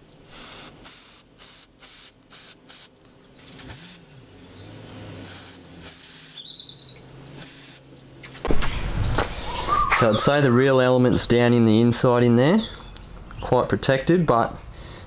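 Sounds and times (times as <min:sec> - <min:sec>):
birds chirping: 0:00.0 - 0:15.0
aerosol can spraying: 0:00.3 - 0:03.0, 0:03.6 - 0:04.1, 0:05.2 - 0:06.4, 0:07.4 - 0:07.8.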